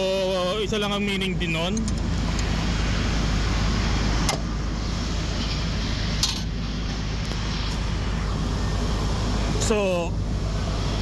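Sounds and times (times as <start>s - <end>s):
low machinery rumble: 0.0s - 11.0s.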